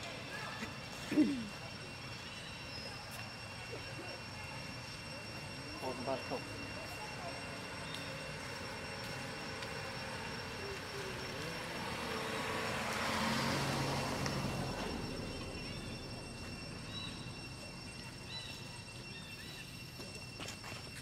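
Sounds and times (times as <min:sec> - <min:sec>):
vehicle passing by: 0:09.3 - 0:17.8.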